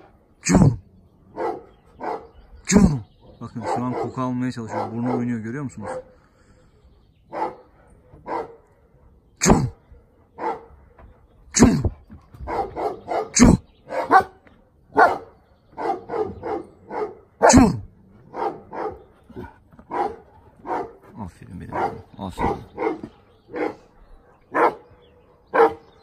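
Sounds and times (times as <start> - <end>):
dog barking: 1.3 - 2.4, 3.6 - 6.2, 7.3 - 8.7, 10.4 - 10.8, 12.4 - 21.1, 21.7 - 26.0.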